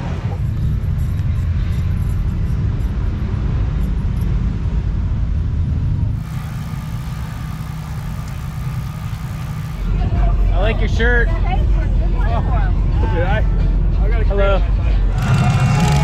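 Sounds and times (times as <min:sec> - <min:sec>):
vehicle engines rumbling: 0:00.0 - 0:16.0
faint steady hum: 0:06.1 - 0:10.0.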